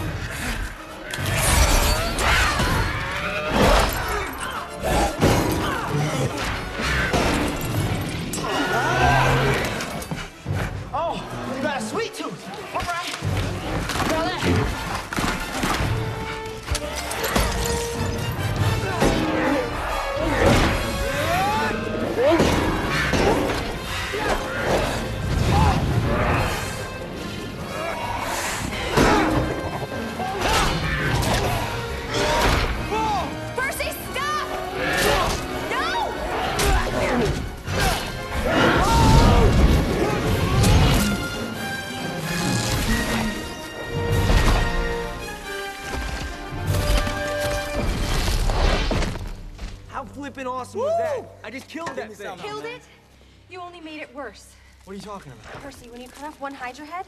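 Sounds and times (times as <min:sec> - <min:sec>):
action film music: 0:00.0 - 0:57.0
orchestral score: 0:00.0 - 0:57.0
creature shrieks and snarls: 0:08.4 - 0:09.8, 0:34.7 - 0:41.2.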